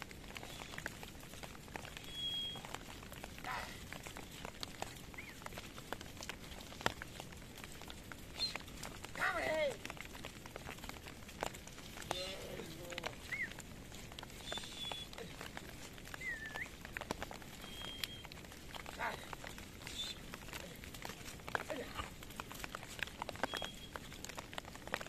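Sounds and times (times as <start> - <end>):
hooves clicking on stones: 0.0 - 25.0
rustling through wet brush: 0.0 - 25.0.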